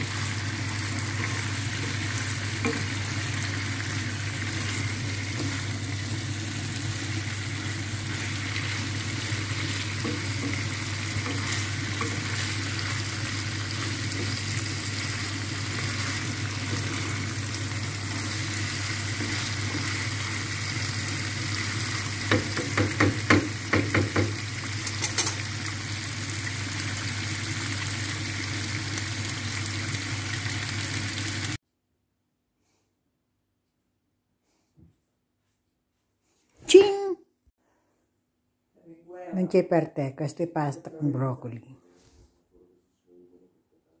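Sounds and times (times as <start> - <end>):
food sizzling in frying pan: 0.0 - 31.6
utensil knocking against pan: 22.2 - 24.4.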